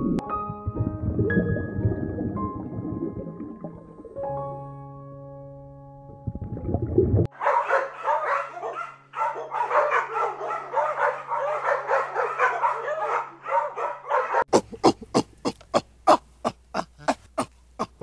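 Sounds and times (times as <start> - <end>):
small dog barking: 7.3 - 14.5.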